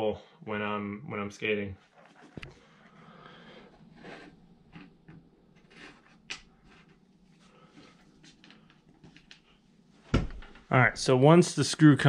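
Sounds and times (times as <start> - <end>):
soft rustling: 1.8 - 10.2.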